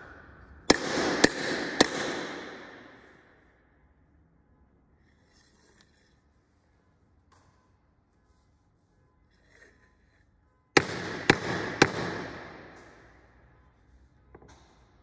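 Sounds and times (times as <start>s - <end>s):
loud echoing knocks: 0.7s - 3.1s, 10.8s - 13.0s.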